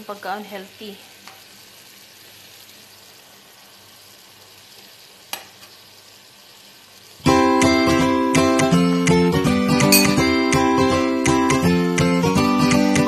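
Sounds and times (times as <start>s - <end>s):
food sizzling in a frying pan: 0.0s - 13.0s
music with plucked strings: 7.3s - 13.0s
metal spoon clinking on pan: 9.9s - 10.3s.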